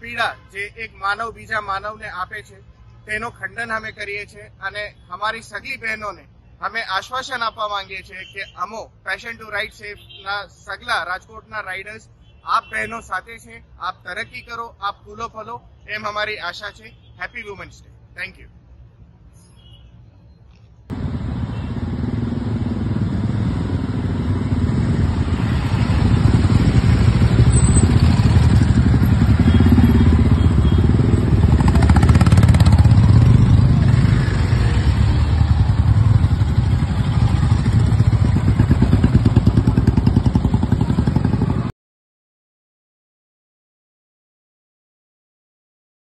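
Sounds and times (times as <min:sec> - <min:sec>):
motorcycle engines running: 0:20.9 - 0:41.7.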